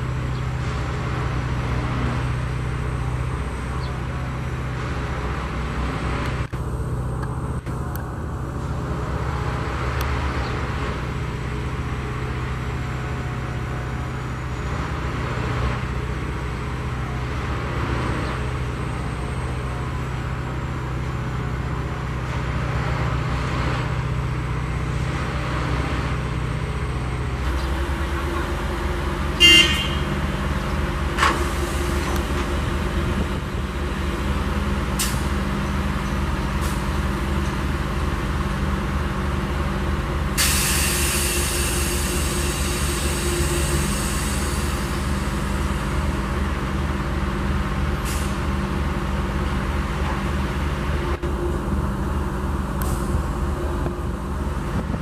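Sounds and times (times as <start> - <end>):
diesel engine droning: 0.0 - 55.0
air hissing out: 40.4 - 45.5.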